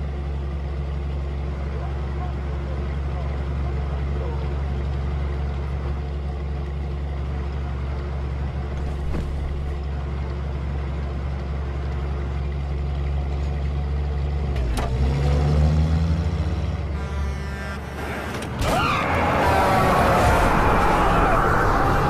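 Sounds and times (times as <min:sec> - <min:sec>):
car engine droning: 0:05.6 - 0:12.0, 0:14.1 - 0:22.0.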